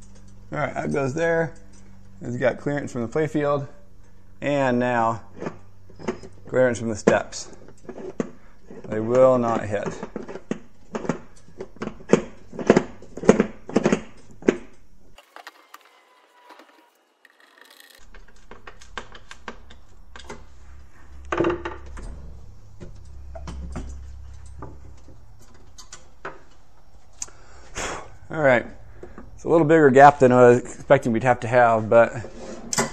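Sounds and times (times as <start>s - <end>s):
plastic parts clicking and knocking: 9.8s - 20.4s
low hum: 18.9s - 25.8s.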